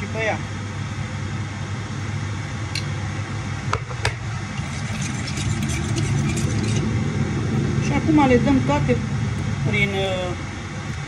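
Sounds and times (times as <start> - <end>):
low machine hum: 0.0 - 11.0
utensil clinking against ceramic bowl: 4.6 - 6.9.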